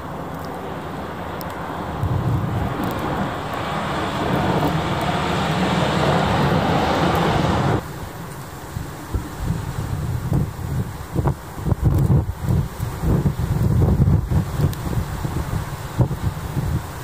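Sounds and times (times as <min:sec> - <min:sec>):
snowplow truck engine rumbling: 0:00.0 - 0:08.1
plow blade pushing snow: 0:00.4 - 0:07.8.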